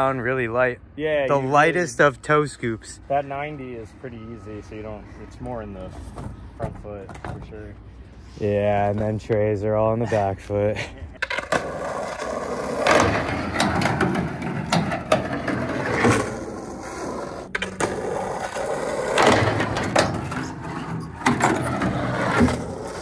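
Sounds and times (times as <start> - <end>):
skateboard wheels rolling on concrete: 2.5 - 23.0
skateboard clacking on ground: 11.2 - 23.0.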